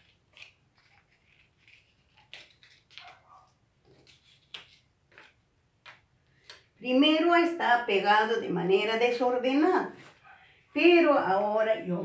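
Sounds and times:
paper rustling and crackling: 0.0 - 5.5.

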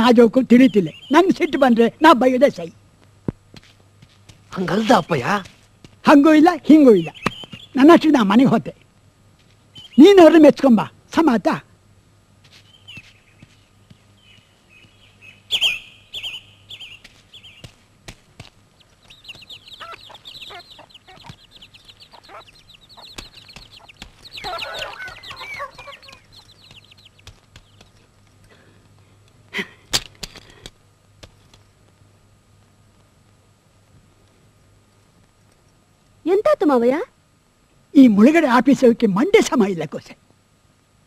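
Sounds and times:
small birds chirping: 0.0 - 2.9, 4.2 - 11.4, 12.5 - 32.0
chickens clucking: 18.7 - 28.1.

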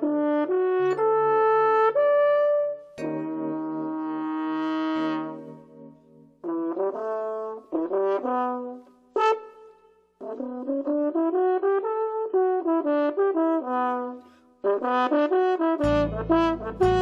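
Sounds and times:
french horn solo: 0.0 - 17.0.

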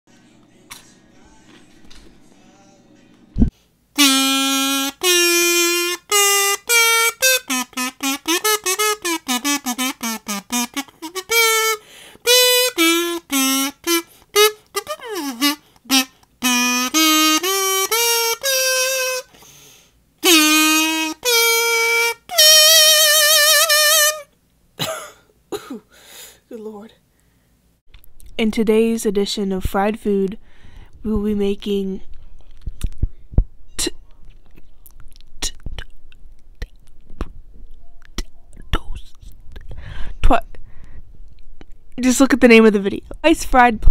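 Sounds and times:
reedy wind instrument solo: 4.0 - 19.4, 20.2 - 24.3.

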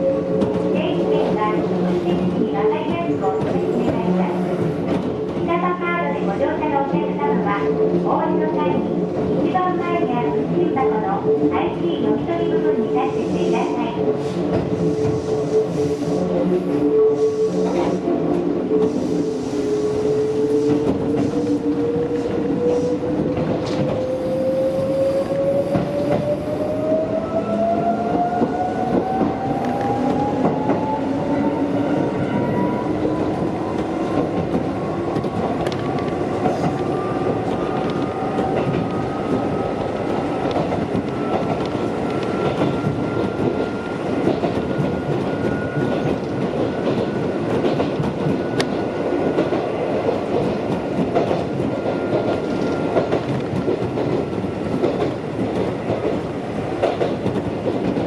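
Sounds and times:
wheels clacking on rails: 27.6 - 58.0.

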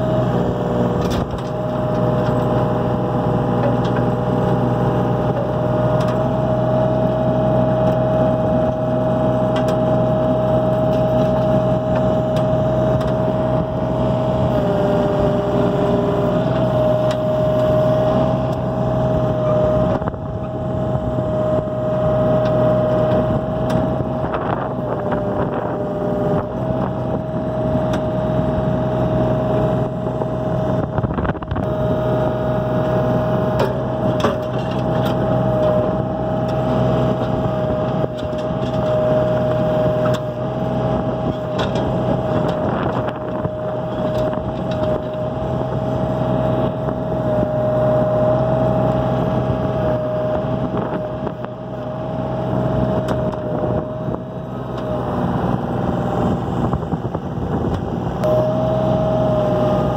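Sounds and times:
excavator engine running: 0.0 - 59.9
high hydraulic whine: 33.6 - 59.9.

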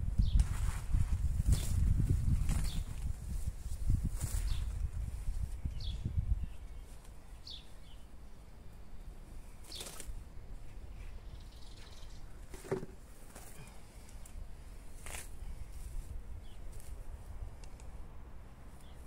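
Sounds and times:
grass rustling crackles: 0.2 - 11.2, 11.8 - 19.0
bird chirp: 5.4 - 10.0, 10.6 - 12.5.

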